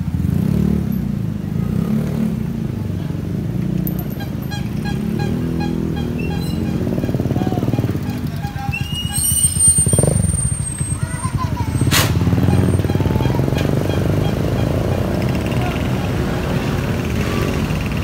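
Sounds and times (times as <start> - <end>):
motorcycle engine running: 3.8 - 18.0.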